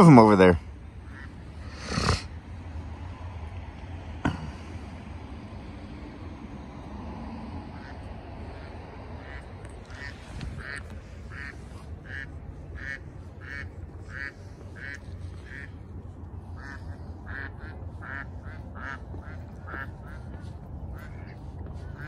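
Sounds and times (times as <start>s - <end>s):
duck quacking: 1.0s - 2.2s, 7.7s - 15.8s, 16.4s - 22.0s.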